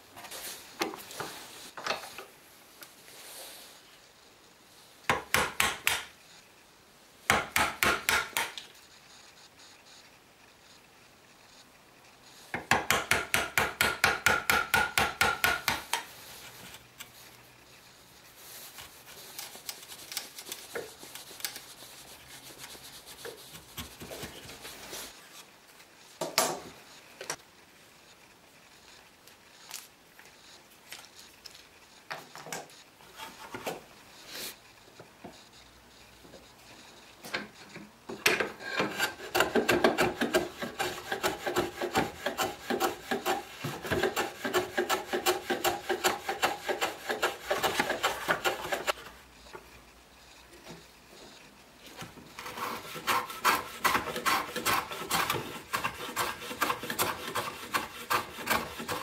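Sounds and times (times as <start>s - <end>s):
fast scraping strokes on wood: 13.0s - 25.4s, 38.6s - 49.1s, 52.3s - 59.0s
wood rubbed on sandpaper: 18.3s - 25.4s, 38.9s - 49.0s, 52.4s - 59.0s
chisel paring cuts: 52.4s - 59.0s.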